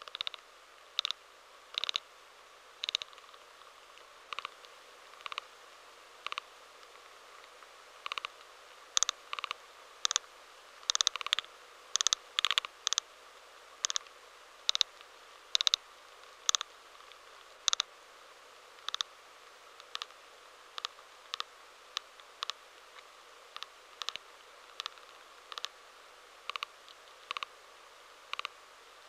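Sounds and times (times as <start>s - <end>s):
termite clicking bursts: 0.0s - 2.1s, 2.8s - 5.5s, 6.2s - 13.1s, 13.8s - 15.8s, 16.4s - 17.9s, 18.8s - 19.1s, 19.8s - 25.8s, 26.4s - 27.5s, 28.3s - 28.6s
faint steady hiss: 0.0s - 29.0s.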